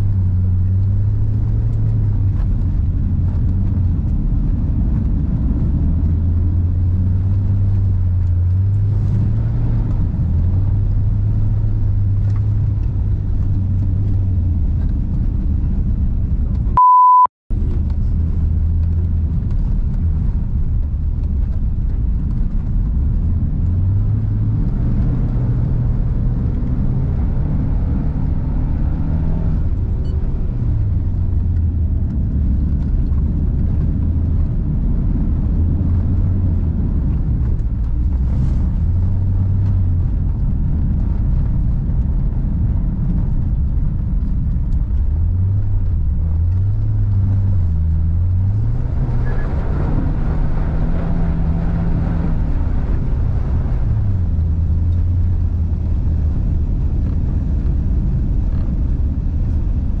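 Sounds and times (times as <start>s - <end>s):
high beep: 16.8s - 17.3s
car engine revving: 45.2s - 56.0s.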